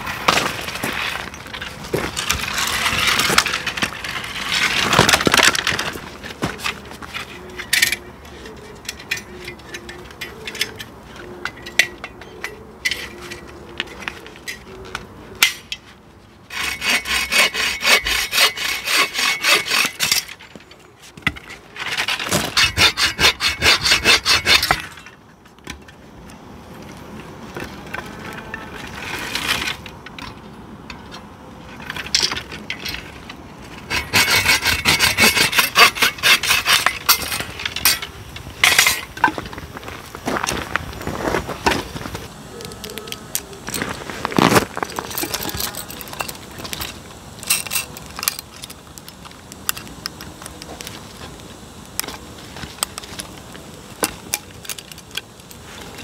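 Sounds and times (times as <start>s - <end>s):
bow saw rasping through branch: 16.5s - 20.3s, 21.8s - 24.8s, 33.9s - 37.5s.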